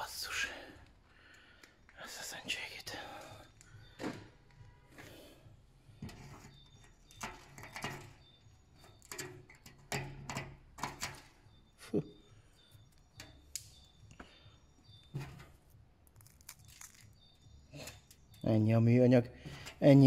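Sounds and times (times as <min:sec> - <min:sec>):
objects being handled: 0:05.9 - 0:11.6, 0:12.6 - 0:18.4.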